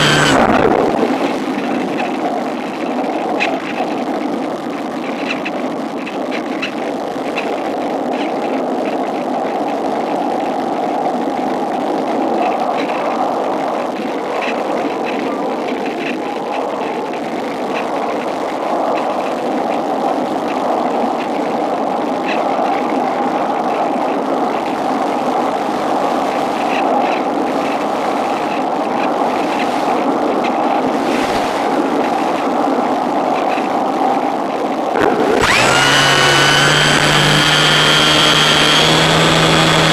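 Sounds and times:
airflow rushing over microphone: 0:00.0 - 0:02.4, 0:22.5 - 0:39.9.

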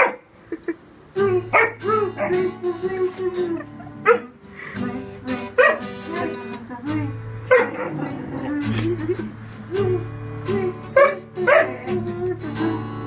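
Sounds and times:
acoustic guitar strumming: 0:01.1 - 0:13.0
puppy howling: 0:01.3 - 0:02.6, 0:07.5 - 0:08.6.

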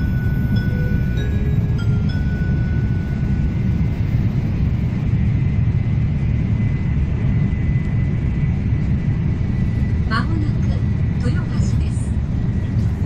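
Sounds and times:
arrival chime: 0:00.0 - 0:04.0
faint high whine: 0:00.0 - 0:06.0
train rumbling from inside: 0:00.0 - 0:13.0.

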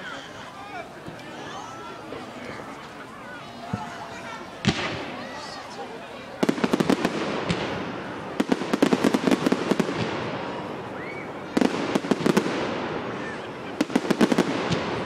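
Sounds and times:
fireworks rumble: 0:00.0 - 0:15.0
fireworks crackling cracks: 0:03.6 - 0:15.0.

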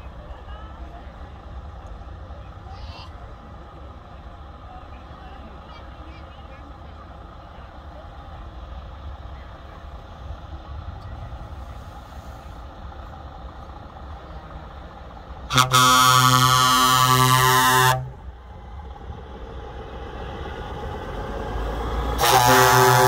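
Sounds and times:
low steady rumble: 0:00.0 - 0:23.0
truck air horn blast: 0:15.5 - 0:18.2, 0:22.2 - 0:23.0.

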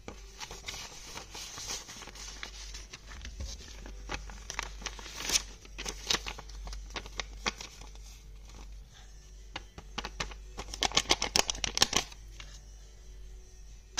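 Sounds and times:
paper rustling: 0:00.0 - 0:08.8.

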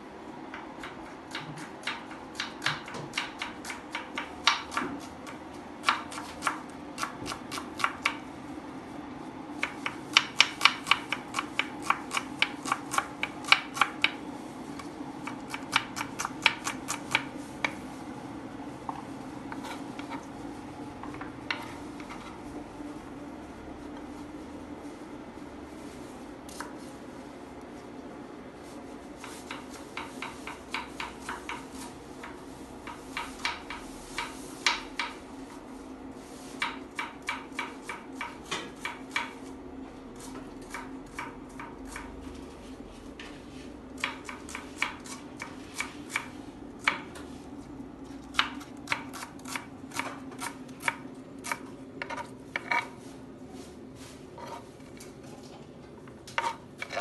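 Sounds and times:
knife chopping on wooden board: 0:48.0 - 0:52.9.

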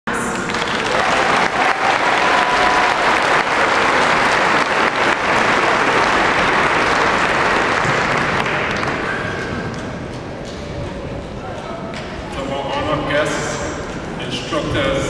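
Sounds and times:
audience applauding: 0:00.2 - 0:09.6.

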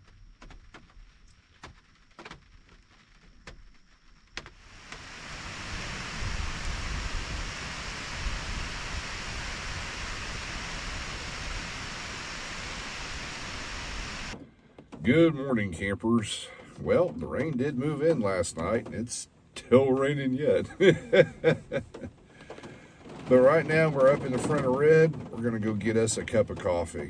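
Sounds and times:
heavy rain falling: 0:00.0 - 0:14.4, 0:20.3 - 0:27.0.

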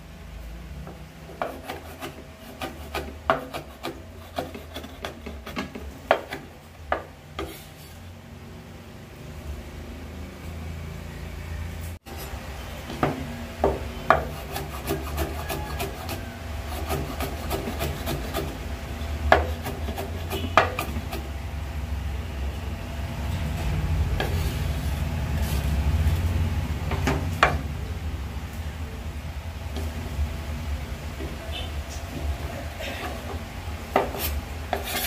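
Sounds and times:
steady low hum: 0:00.0 - 0:35.0
blade scraping board: 0:01.3 - 0:08.1, 0:12.1 - 0:21.3, 0:23.3 - 0:27.6, 0:33.0 - 0:35.0
cleaver chopping on wooden board: 0:19.3 - 0:21.2.

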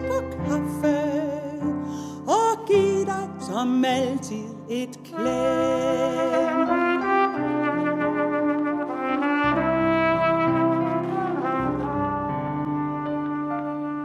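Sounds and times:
piano accompaniment: 0:00.0 - 0:14.0
trumpet slow melody: 0:05.0 - 0:14.0.

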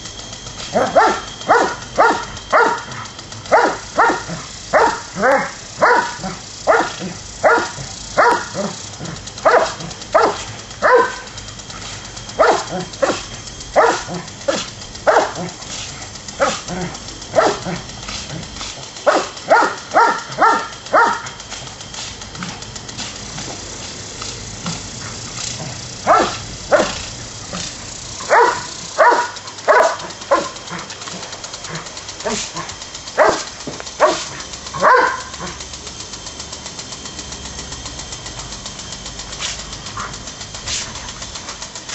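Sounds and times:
lawn sprinkler spray hiss: 0:00.0 - 0:41.9
dog barking: 0:00.8 - 0:08.8, 0:09.4 - 0:11.2, 0:12.4 - 0:13.2, 0:13.8 - 0:15.5, 0:16.4 - 0:17.8, 0:19.1 - 0:21.3, 0:26.0 - 0:27.0, 0:28.2 - 0:30.6, 0:33.2 - 0:35.6.

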